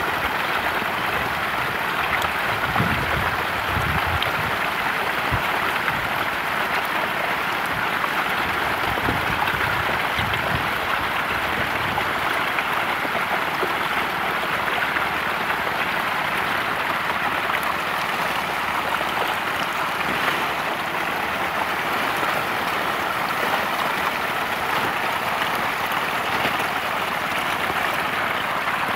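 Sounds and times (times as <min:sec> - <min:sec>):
fish splashing at water surface: 0:09.1 - 0:28.9.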